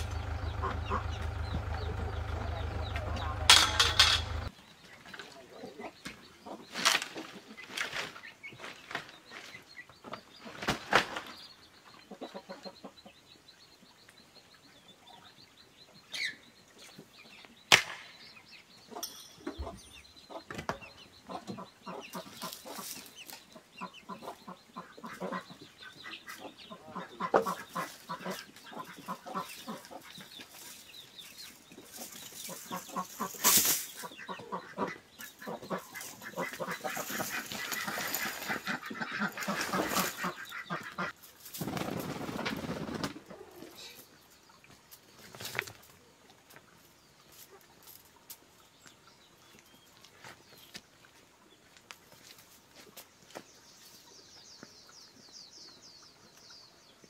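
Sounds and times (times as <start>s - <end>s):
chickens clucking: 0.0s - 8.4s, 11.8s - 13.3s, 18.8s - 44.7s
wire mesh rattling and scraping: 2.8s - 4.5s.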